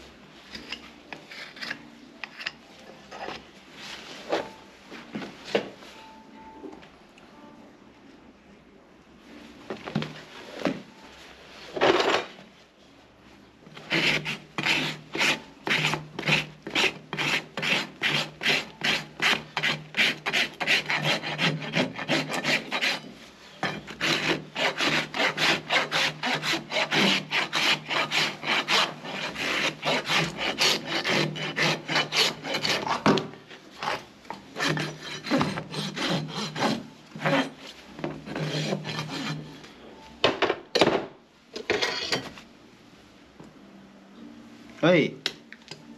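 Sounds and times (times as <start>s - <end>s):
rasp filing a hoof: 13.8s - 33.2s, 34.6s - 37.6s, 38.3s - 39.5s.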